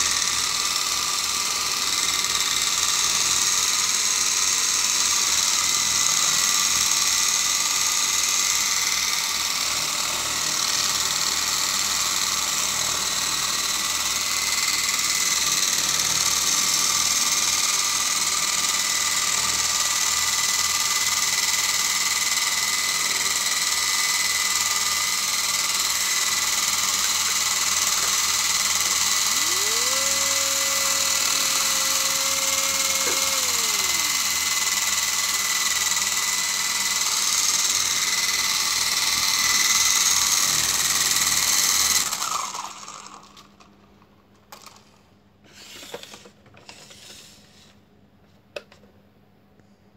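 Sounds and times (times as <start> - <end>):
toy helicopter rotors whining: 0.0 - 43.6.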